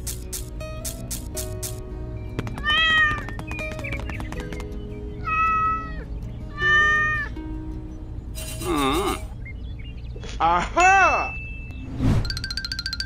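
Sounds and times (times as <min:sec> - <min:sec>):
background music: 0:00.0 - 0:09.8
cat meowing: 0:05.2 - 0:07.3.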